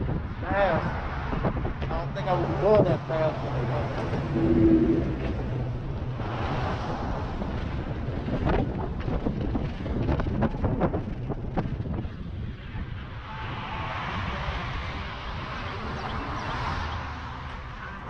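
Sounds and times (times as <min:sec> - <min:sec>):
wind rushing over microphone: 0:00.0 - 0:18.0
low rumble: 0:01.9 - 0:09.0.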